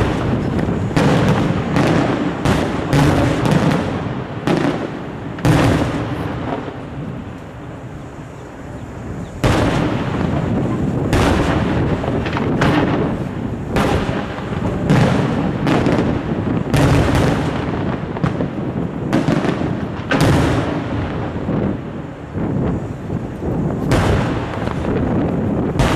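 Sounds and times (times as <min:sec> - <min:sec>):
firework shells bursting: 0:00.0 - 0:20.9.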